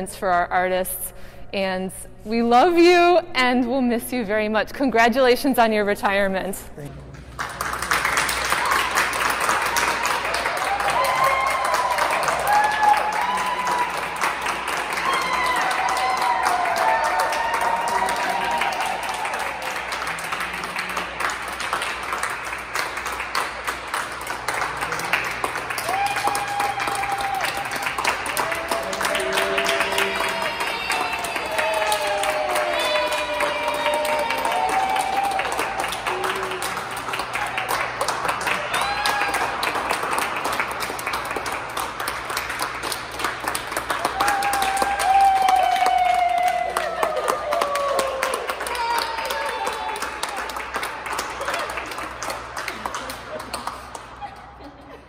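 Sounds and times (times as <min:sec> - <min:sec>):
group of people clapping: 0:07.0 - 0:55.0
long high held call: 0:26.0 - 0:35.1.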